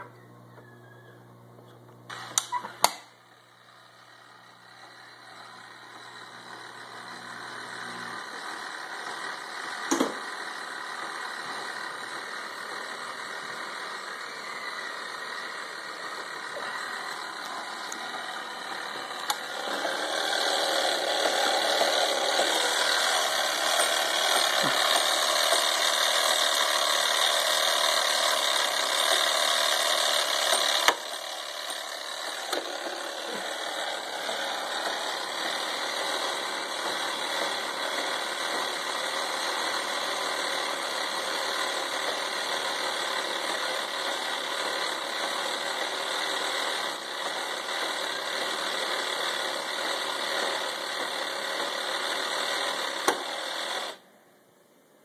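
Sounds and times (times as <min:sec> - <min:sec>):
click: 0:01.6 - 0:03.1, 0:53.0 - 0:53.2.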